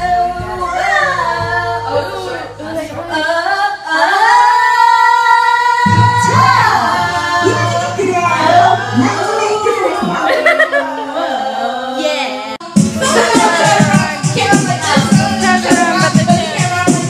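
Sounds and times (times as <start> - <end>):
woman singing into microphone: 0.0 - 17.0
backing track with bass line: 5.8 - 10.5, 12.6 - 17.0.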